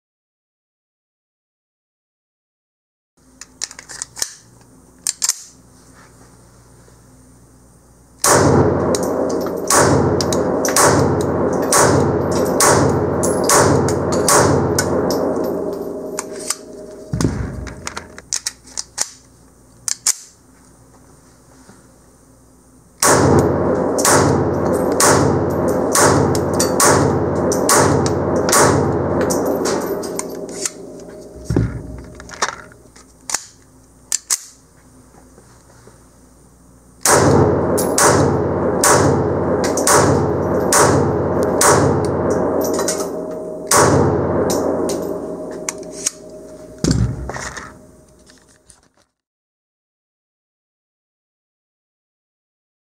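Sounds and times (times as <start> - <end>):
gunshots: 8.2 - 18.2, 23.0 - 32.4, 46.8 - 47.8.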